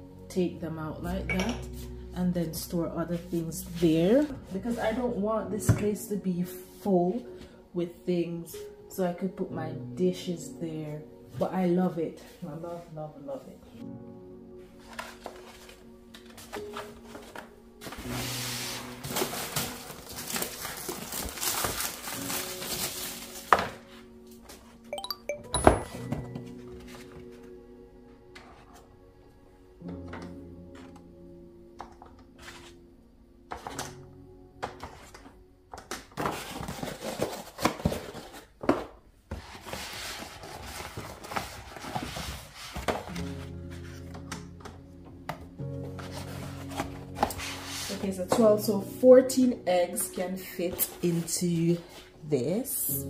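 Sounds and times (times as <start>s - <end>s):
plastic film crinkling: 14.8s - 24.5s, 35.9s - 38.6s.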